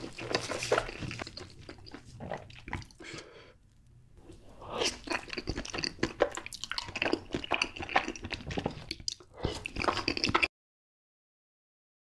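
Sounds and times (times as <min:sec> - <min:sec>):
wet slurping and chewing: 0:00.0 - 0:03.3, 0:04.4 - 0:10.5.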